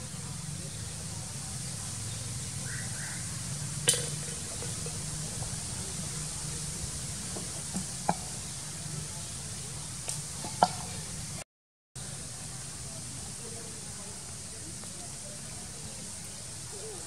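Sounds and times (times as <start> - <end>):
background hum and hiss: 0.0 - 11.4.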